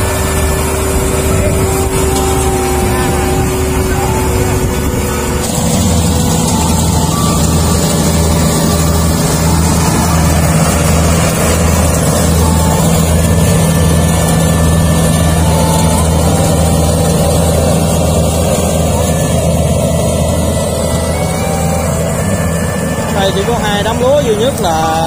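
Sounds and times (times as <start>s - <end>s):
combine harvester engine droning: 0.0s - 25.0s.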